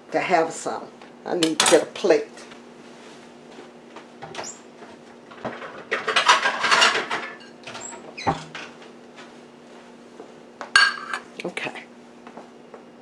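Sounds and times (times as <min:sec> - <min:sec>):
crockery rattling: 0:05.5 - 0:08.5.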